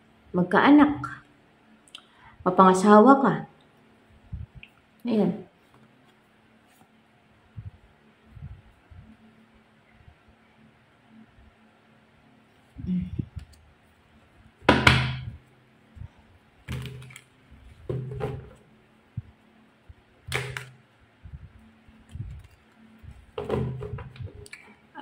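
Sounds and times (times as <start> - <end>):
cards being shuffled: 16.7 - 17.4, 21.9 - 23.0.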